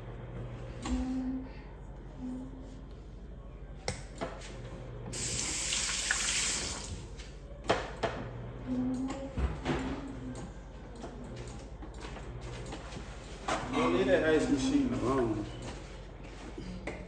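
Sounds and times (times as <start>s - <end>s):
tap water running into sink: 5.2s - 7.0s.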